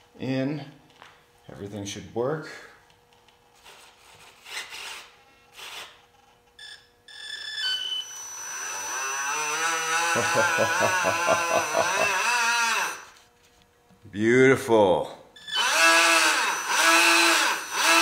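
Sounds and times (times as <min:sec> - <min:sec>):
electric motor whine: 0:08.0 - 0:13.2, 0:15.5 - 0:18.0.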